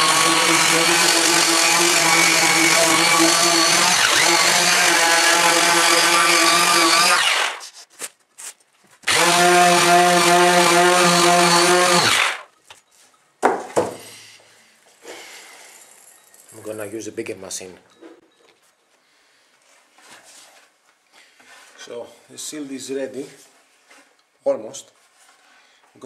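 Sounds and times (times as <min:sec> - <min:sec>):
orbital sander running: 0:00.0 - 0:07.6, 0:09.1 - 0:12.4
sharp wooden knocks: 0:13.4 - 0:14.0.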